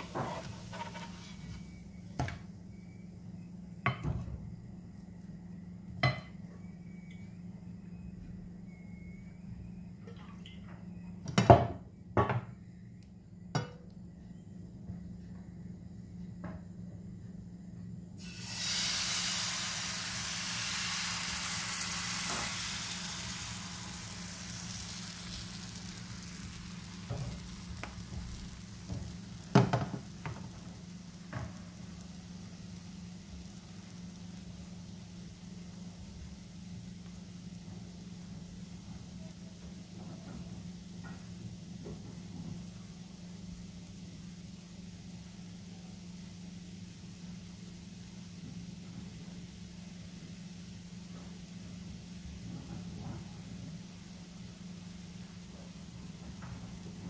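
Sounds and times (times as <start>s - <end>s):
batter sizzling in hot pan: 0.0s - 3.0s, 18.2s - 57.0s.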